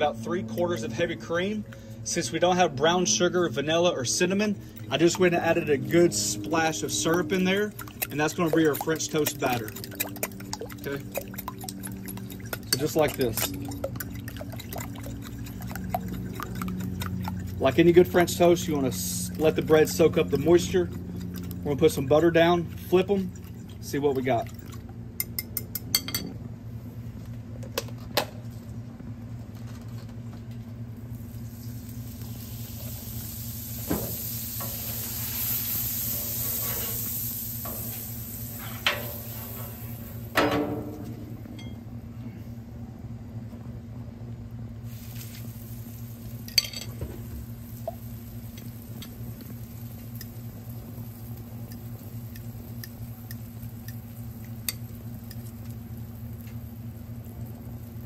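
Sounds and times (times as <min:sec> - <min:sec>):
low hum: 0:00.0 - 0:57.4
fork whisking in glass bowl: 0:06.9 - 0:21.5
butter sizzling on griddle: 0:31.0 - 0:40.3, 0:44.9 - 0:58.0.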